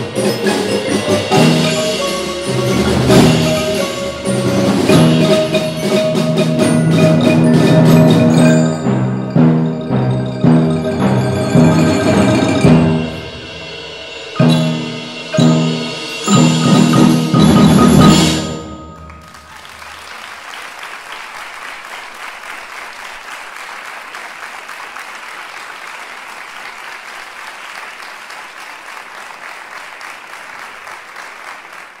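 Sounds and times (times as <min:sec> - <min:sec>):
percussion ensemble playing: 0:00.0 - 0:20.2
audience applauding: 0:18.6 - 0:32.0.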